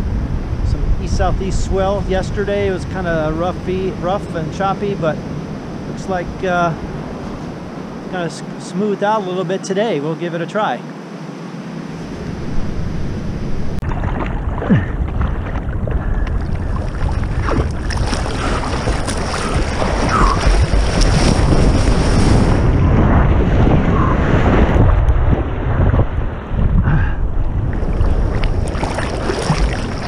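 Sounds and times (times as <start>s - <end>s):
wind rumbling on microphone: 0.0s - 10.0s, 10.9s - 30.0s
sea water sloshing and splashing: 13.8s - 30.0s.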